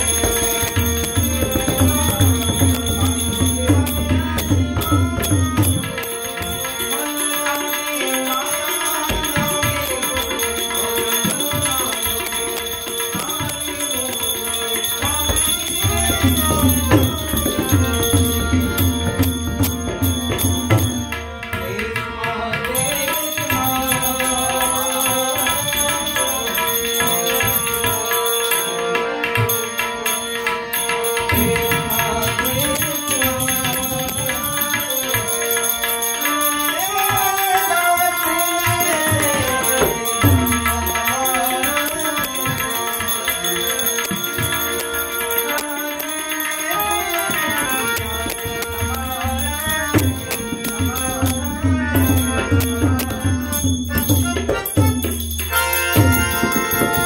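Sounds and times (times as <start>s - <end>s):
hand cymbals ringing: 0.0s - 21.4s, 22.8s - 57.0s
harmonium melody: 0.0s - 57.0s
tabla drumming: 0.0s - 57.0s.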